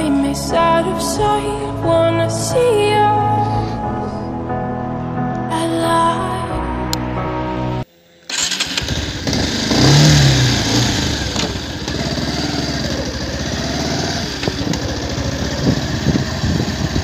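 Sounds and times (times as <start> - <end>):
motorcycle engine revving: 8.3 - 17.0.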